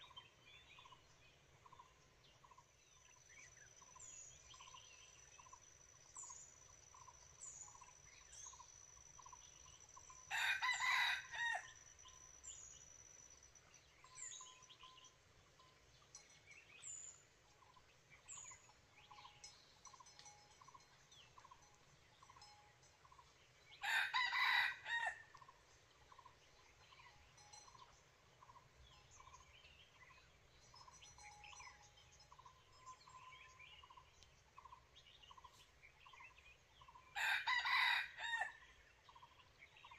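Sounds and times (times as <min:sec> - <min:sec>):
small birds chirping: 0:00.0 - 0:37.8, 0:38.6 - 0:39.9
rooster crowing: 0:10.3 - 0:11.8, 0:23.8 - 0:25.4, 0:37.2 - 0:38.6.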